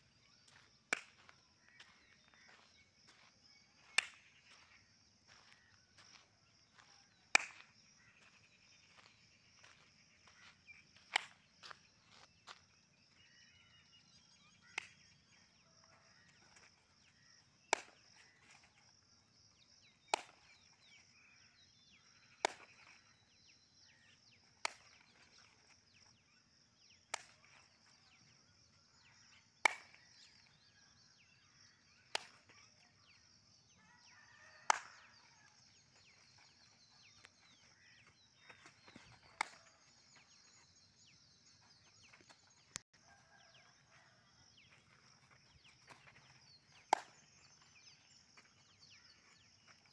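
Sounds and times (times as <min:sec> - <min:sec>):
hand claps: 0:07.3 - 0:07.7, 0:34.7 - 0:34.9, 0:46.9 - 0:47.2.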